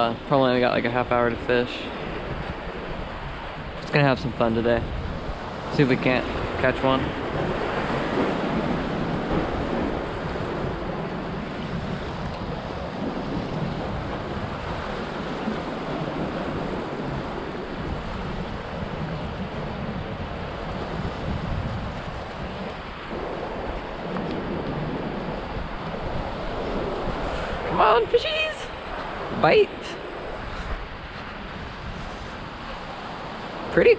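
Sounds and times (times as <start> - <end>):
surf washing against rocks: 0.0 - 33.9
wind buffeting microphone: 0.0 - 33.9.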